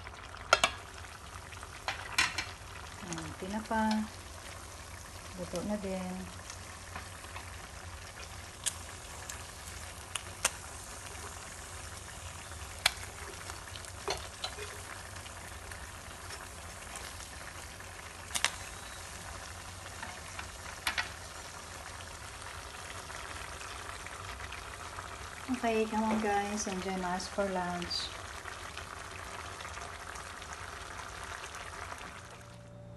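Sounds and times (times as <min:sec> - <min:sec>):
fish sizzling in oil: 0:00.0 - 0:32.5
oil clicks and pops: 0:08.6 - 0:09.4, 0:10.0 - 0:10.6, 0:12.8 - 0:13.1, 0:18.3 - 0:18.6.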